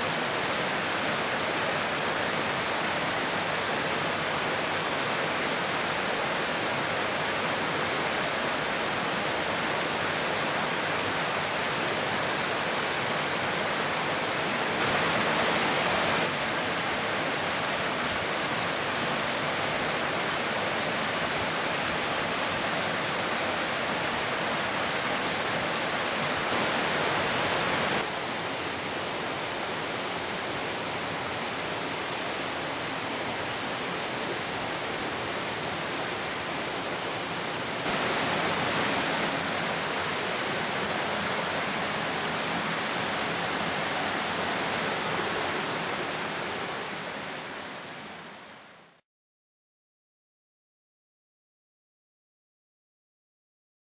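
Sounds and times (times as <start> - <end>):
river water rushing over rocks: 0.0 - 49.0.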